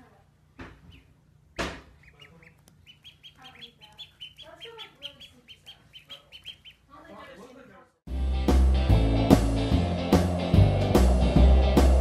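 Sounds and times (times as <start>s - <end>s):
duckling peeping: 0.7s - 7.4s.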